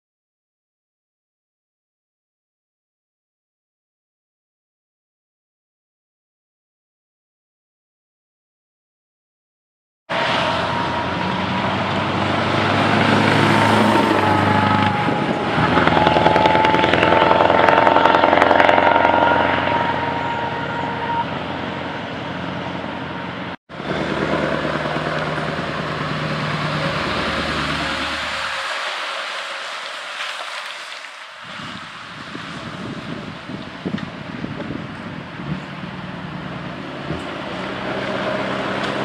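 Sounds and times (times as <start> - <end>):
truck diesel engine passing: 10.1 - 39.0.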